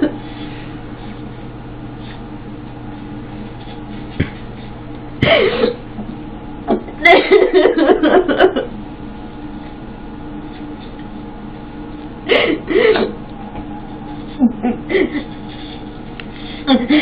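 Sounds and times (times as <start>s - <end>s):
electric hair clippers humming: 1.6s - 17.0s
woman sobbing: 12.3s - 13.2s, 14.0s - 15.6s, 16.5s - 17.0s.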